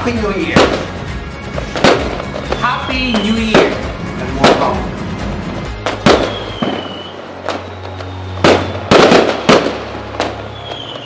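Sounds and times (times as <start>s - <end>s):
fireworks bangs: 0.0s - 11.0s
firework whistle: 2.3s - 3.8s, 5.8s - 11.0s.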